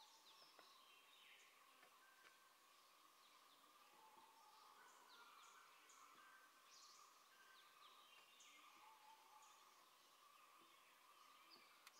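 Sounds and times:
small birds chirping: 0:00.0 - 0:11.9.

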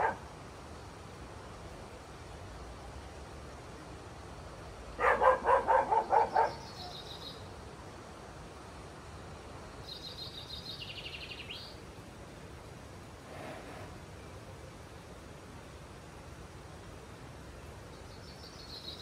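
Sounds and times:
dog barking: 0:00.0 - 0:00.2, 0:05.0 - 0:06.6.

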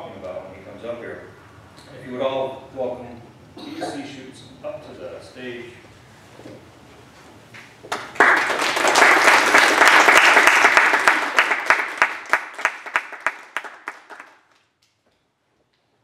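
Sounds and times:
audience applauding: 0:07.9 - 0:14.7.

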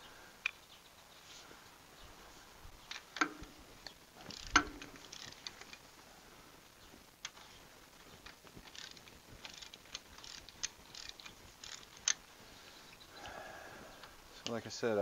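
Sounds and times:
ratchet wrench clicking: 0:04.2 - 0:05.7, 0:08.6 - 0:12.2.

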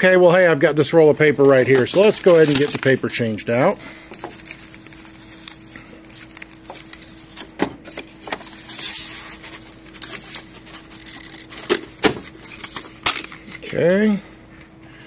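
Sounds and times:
steady low hum: 0:00.0 - 0:15.0
clicks of handling plastic cover: 0:01.4 - 0:03.0.

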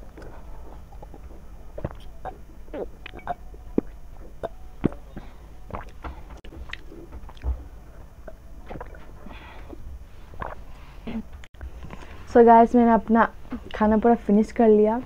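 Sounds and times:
person gulping water: 0:00.1 - 0:07.6, 0:08.2 - 0:11.2.

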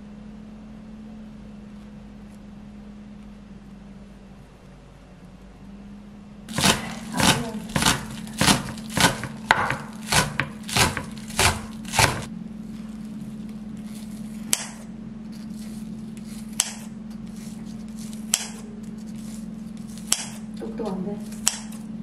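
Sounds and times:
steady low hum: 0:00.0 - 0:22.0
knife chopping on cutting board: 0:06.5 - 0:12.3, 0:14.5 - 0:14.8, 0:16.5 - 0:18.6, 0:19.9 - 0:20.4, 0:21.3 - 0:21.8
knocks: 0:06.5 - 0:12.3.

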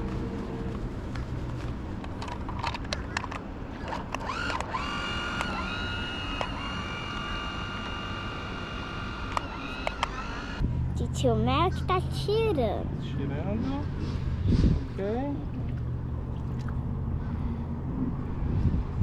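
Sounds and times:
boat electric motor whine: 0:03.9 - 0:10.7.

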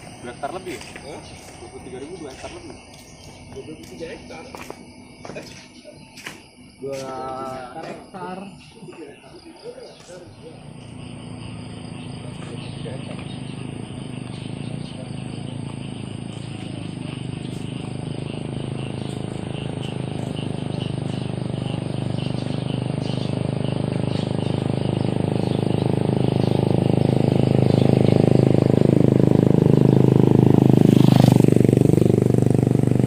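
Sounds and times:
vehicle engine passing by: 0:10.3 - 0:33.0.

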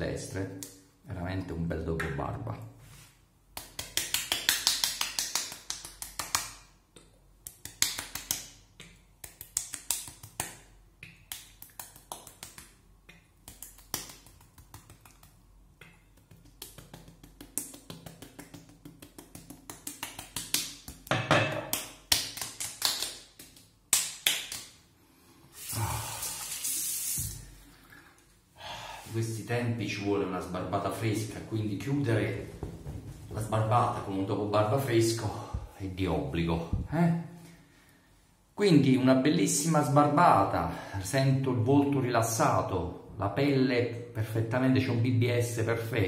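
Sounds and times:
hands slapping face: 0:03.5 - 0:06.8, 0:07.4 - 0:24.8.

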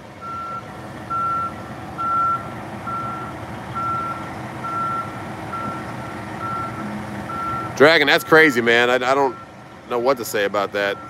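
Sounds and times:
truck engine running: 0:00.0 - 0:11.0
backup alarm beeping: 0:00.2 - 0:08.4.

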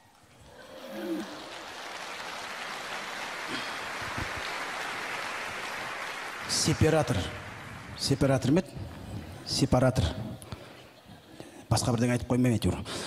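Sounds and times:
audience applauding: 0:00.4 - 0:08.5.

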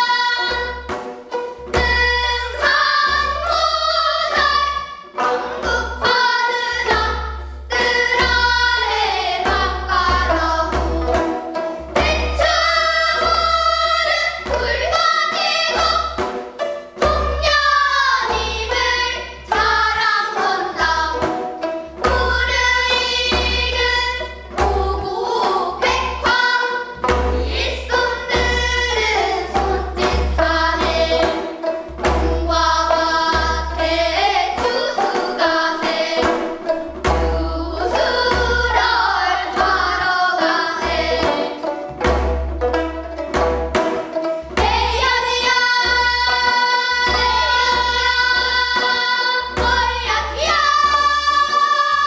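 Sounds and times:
girls singing together: 0:00.0 - 0:42.3, 0:44.2 - 0:52.0
plucked zither notes: 0:00.0 - 0:52.0.

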